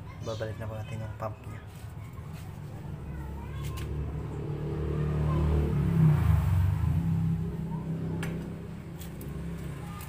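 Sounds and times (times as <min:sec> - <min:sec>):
vehicle engine passing by: 0:02.2 - 0:10.0.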